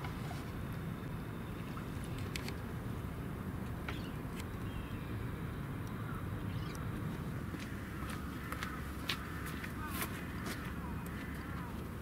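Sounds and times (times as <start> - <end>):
faint high chirp: 6.4 - 6.8.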